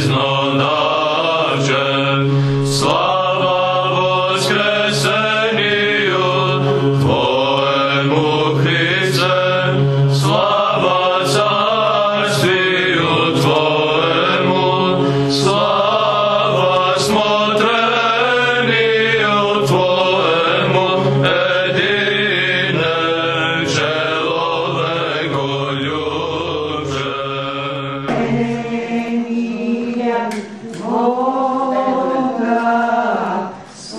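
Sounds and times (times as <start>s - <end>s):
voices chanting a winding melody: 0.0s - 33.9s
low held drone note: 24.8s - 30.1s.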